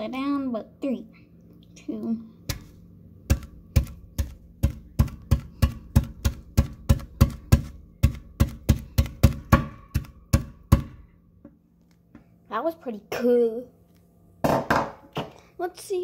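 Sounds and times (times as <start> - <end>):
hammer striking tablet in sink: 2.5 - 11.0.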